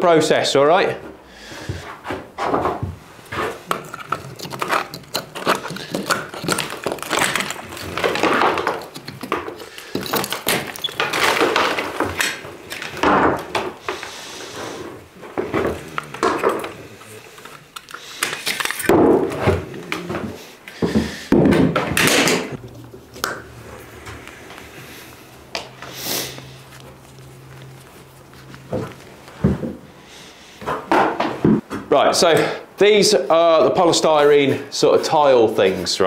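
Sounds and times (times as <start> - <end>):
cable scraping off brick wall: 3.2 - 21.4.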